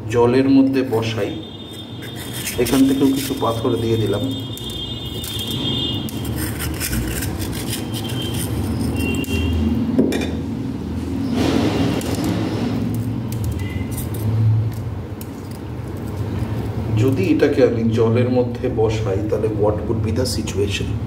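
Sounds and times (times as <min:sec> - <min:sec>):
stones clinking against clay pot: 0:02.0 - 0:04.1.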